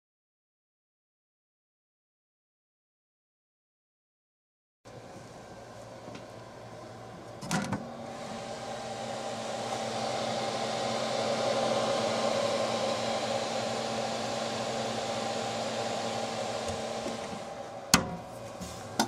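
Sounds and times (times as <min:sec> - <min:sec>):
fan whirr: 0:04.9 - 0:19.0.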